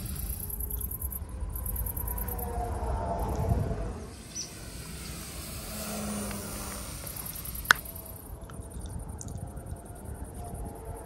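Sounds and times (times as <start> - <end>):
model plane motor and propeller: 4.2 - 8.8.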